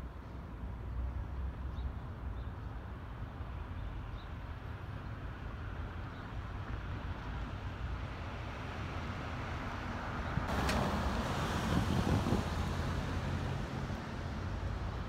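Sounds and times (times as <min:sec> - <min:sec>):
wind buffeting microphone: 0:10.4 - 0:13.1.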